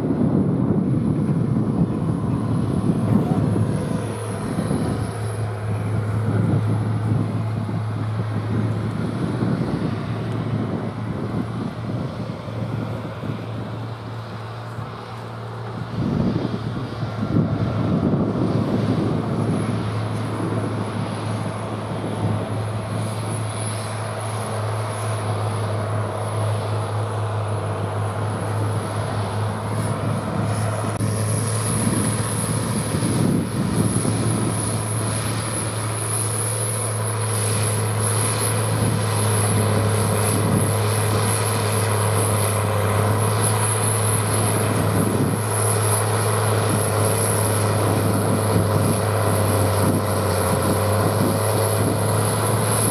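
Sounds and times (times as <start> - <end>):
constant high whine: 0.0 - 52.9
tractor diesel engine under load: 0.0 - 52.9.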